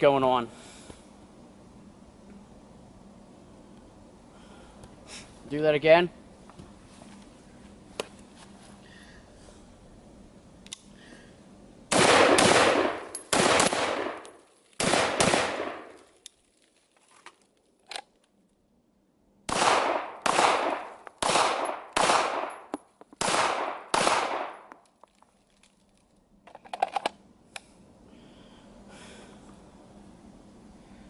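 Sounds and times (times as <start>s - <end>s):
gunshots with ringing tail: 11.9s - 14.2s, 14.8s - 15.9s, 19.5s - 24.6s
handgun shots: 11.9s - 14.2s, 14.8s - 15.9s, 19.5s - 24.7s
rattle of metallic clicks: 26.4s - 27.2s.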